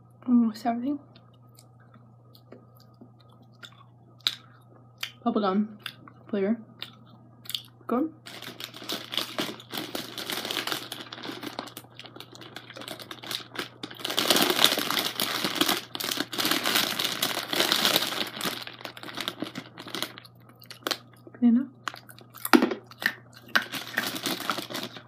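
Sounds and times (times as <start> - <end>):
plastic bag crinkling: 8.2 - 25.0.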